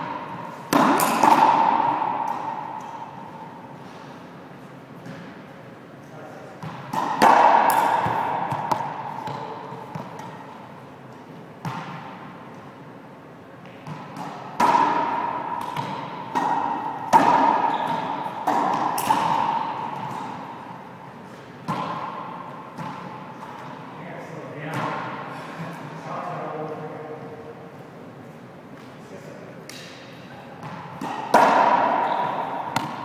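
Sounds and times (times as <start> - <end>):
racquetball smacks ringing: 0.7 - 3.2, 6.7 - 10.4, 13.8 - 20.4, 30.6 - 33.0.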